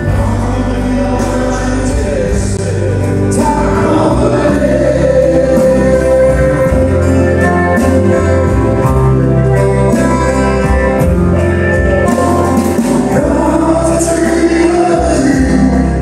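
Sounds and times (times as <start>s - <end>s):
man singing country song: 0.0s - 8.3s, 13.1s - 16.0s
acoustic guitar: 0.0s - 16.0s
bass line: 0.0s - 16.0s.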